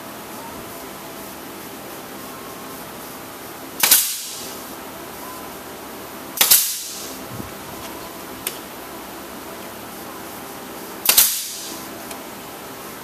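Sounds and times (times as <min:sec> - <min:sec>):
air exhaust hiss: 0:01.0 - 0:04.9, 0:06.3 - 0:13.0
nail gun firing: 0:03.8 - 0:04.4, 0:06.4 - 0:07.1, 0:11.0 - 0:11.7.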